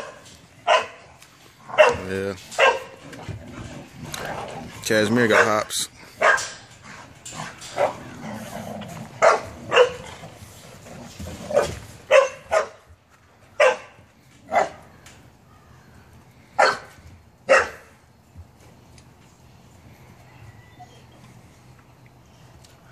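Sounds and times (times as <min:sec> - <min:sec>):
puppies play-barking: 0:00.0 - 0:13.0.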